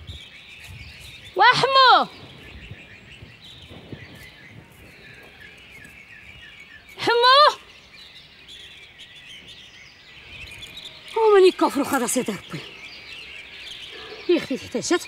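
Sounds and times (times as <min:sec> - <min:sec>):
small birds chirping: 0:00.0 - 0:15.0
woman shouting: 0:01.4 - 0:02.1, 0:07.0 - 0:07.6.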